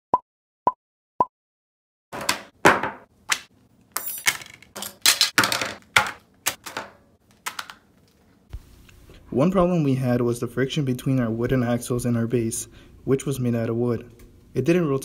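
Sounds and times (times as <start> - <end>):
objects knocking on wooden table: 2.2 - 3.1.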